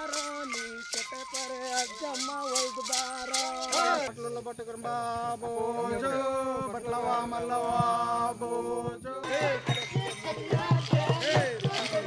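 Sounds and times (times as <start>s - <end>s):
shaken rattle: 0.0s - 4.1s, 9.8s - 12.0s
men chanting: 0.0s - 12.0s.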